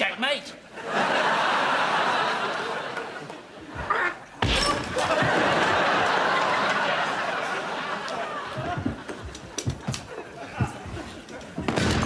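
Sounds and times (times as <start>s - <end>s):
studio audience laughing: 0.7s - 3.7s, 4.9s - 11.4s.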